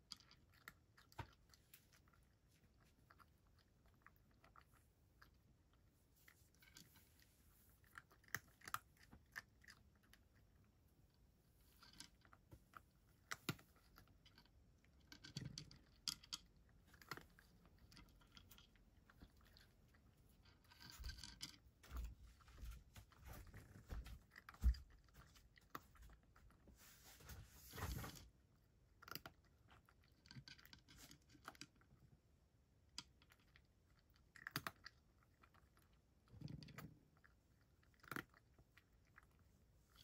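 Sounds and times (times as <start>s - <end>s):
cat chewing and crunching: 0.0s - 40.0s.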